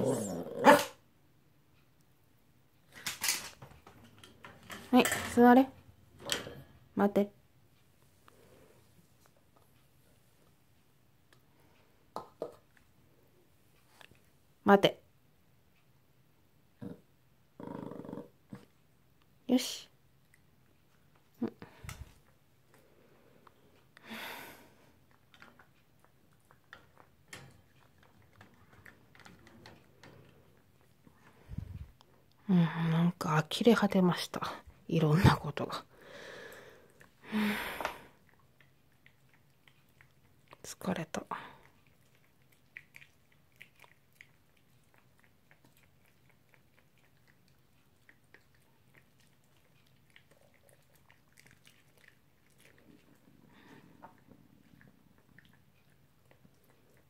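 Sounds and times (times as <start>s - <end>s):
dog chewing with small crunches: 25.1s - 31.1s, 38.2s - 57.0s
dog chewing hard chew: 41.7s - 53.3s.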